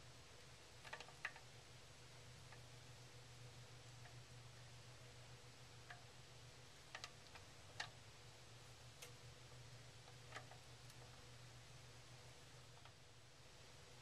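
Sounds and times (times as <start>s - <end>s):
low steady hum: 0.0s - 14.0s
faint clicks: 9.0s - 9.2s.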